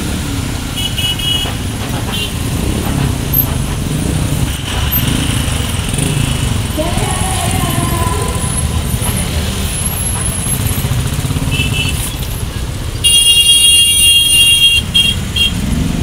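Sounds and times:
loud vehicle horn blast: 0.8s - 1.5s, 11.5s - 12.0s, 13.0s - 15.6s
motorcycle engines pulling away: 1.5s - 13.1s, 14.8s - 16.0s
short horn beeps: 13.0s - 15.5s.

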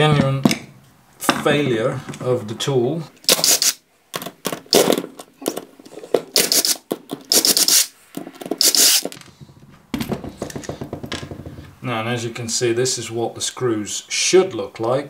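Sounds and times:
cordless drill whirring: 3.3s - 3.8s, 6.4s - 7.9s, 8.6s - 9.1s.

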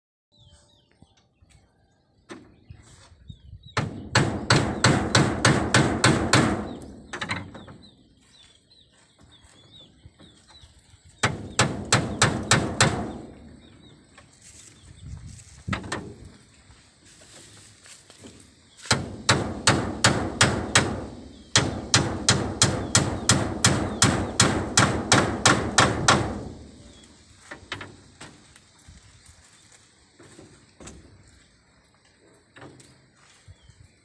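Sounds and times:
small birds chirping: 0.3s - 5.5s, 6.3s - 19.0s, 20.4s - 25.8s, 26.5s - 34.0s
hammer driving nails into wood: 3.8s - 7.4s, 11.2s - 13.2s, 18.9s - 26.5s.

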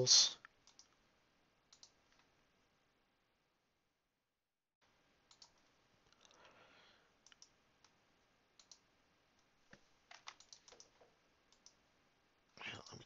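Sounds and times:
computer mouse clicks: 0.4s - 1.0s, 1.7s - 2.3s, 5.3s - 6.4s, 7.2s - 8.0s, 8.6s - 11.8s.

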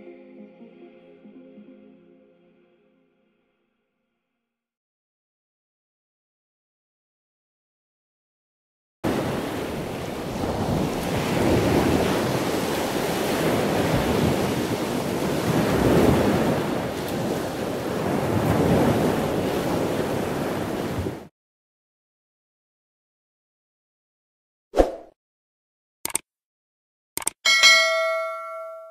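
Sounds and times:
surf washing onto beach: 9.1s - 21.3s
wind rumbling on microphone: 9.1s - 21.3s.

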